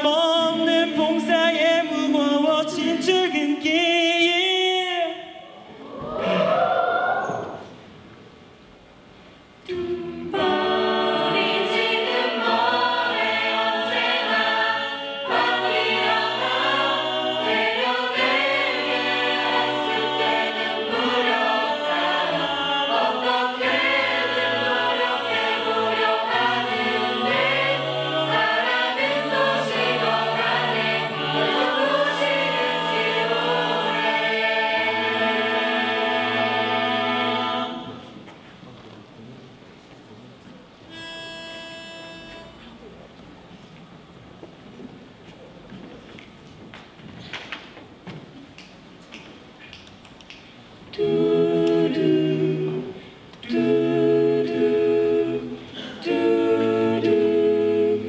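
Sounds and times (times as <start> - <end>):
mixed choir singing in harmony: 5.4 - 7.8, 9.7 - 38.2, 50.9 - 58.0.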